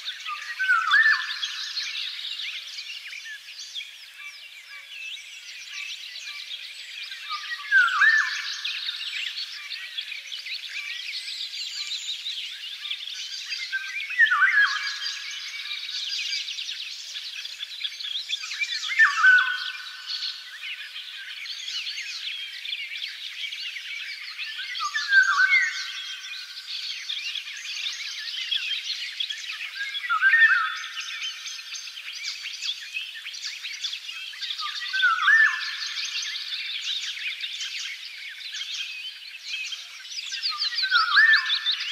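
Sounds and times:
birds chirping in chorus: 0:00.0 - 0:41.9.

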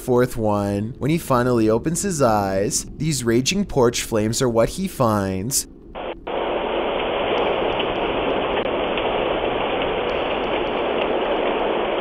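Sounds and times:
fire crackling: 0:00.9 - 0:12.0
fire rushing: 0:05.0 - 0:12.0.

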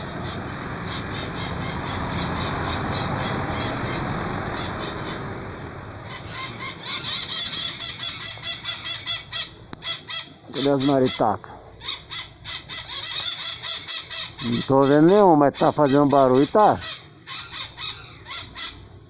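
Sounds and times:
broad rushing noise: 0:00.0 - 0:12.5
parrots screeching: 0:00.0 - 0:19.0.

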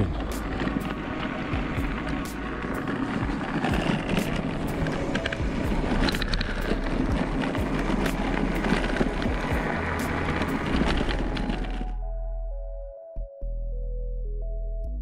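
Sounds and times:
bike clicks and rattles: 0:00.0 - 0:11.9
tyre and wind noise: 0:00.0 - 0:12.0.

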